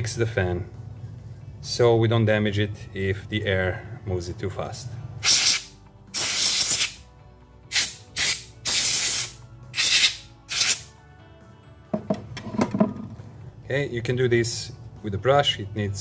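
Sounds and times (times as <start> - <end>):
compressed air hissing blasts: 5.2 - 7.0, 7.7 - 10.9.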